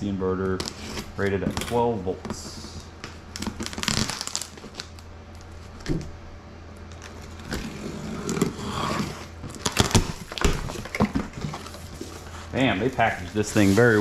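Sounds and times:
cardboard scraping and rustling: 7.0s - 14.0s.

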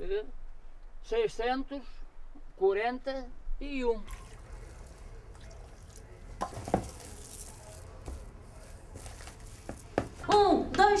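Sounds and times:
water trickling from a tap: 4.0s - 7.8s
hand squishing wet paste: 4.1s - 10.2s.

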